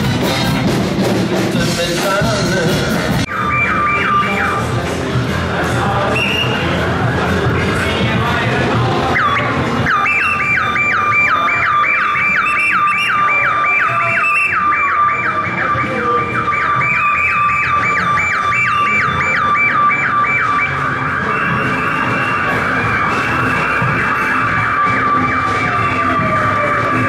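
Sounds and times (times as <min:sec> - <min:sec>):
small electronic siren: 0:03.3 - 0:04.6, 0:09.1 - 0:27.0.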